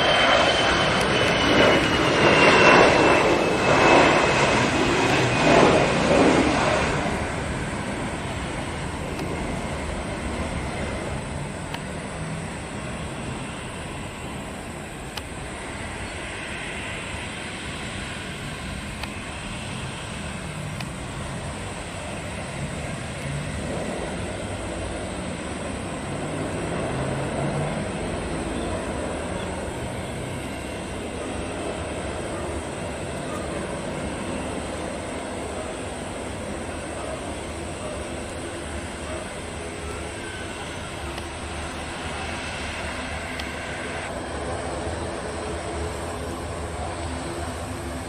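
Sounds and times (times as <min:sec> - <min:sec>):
jet engines rushing: 0:00.0 - 0:48.0.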